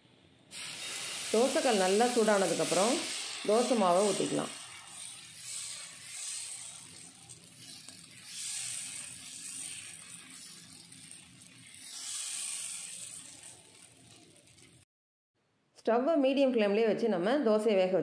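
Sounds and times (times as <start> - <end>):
ladle scraping hot griddle: 0.5 - 14.8
batter sizzling: 0.5 - 14.9.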